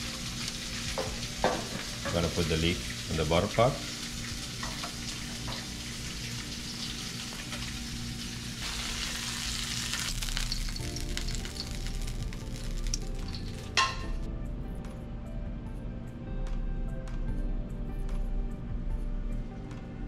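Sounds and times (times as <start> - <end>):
food sizzling in hot oil: 0.0 - 14.3
soft background music: 0.0 - 20.0.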